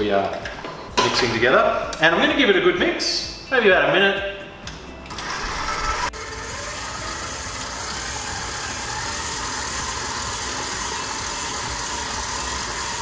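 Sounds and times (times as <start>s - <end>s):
stand mixer motor running: 5.2s - 13.0s.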